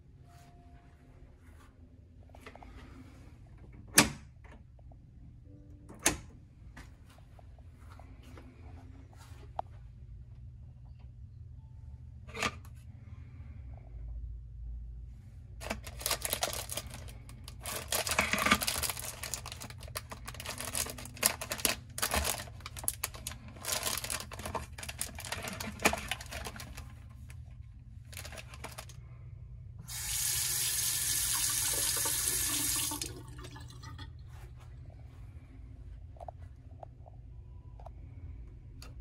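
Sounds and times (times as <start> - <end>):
plastic wrappers crinkling: 15.6 - 29.0
tap water running into sink: 29.9 - 34.0.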